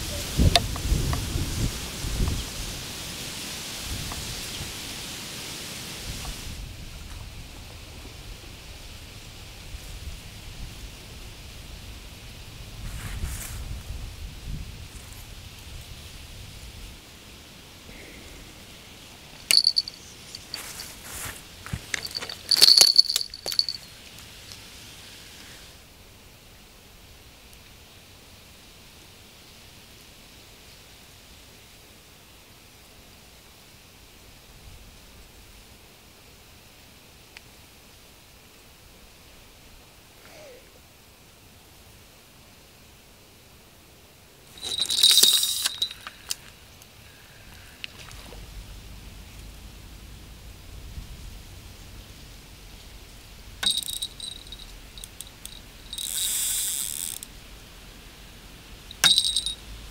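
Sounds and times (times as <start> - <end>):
small bell jingling: 19.5 - 20.9, 21.8 - 24.0, 44.6 - 46.1, 53.6 - 56.2, 58.9 - 59.7.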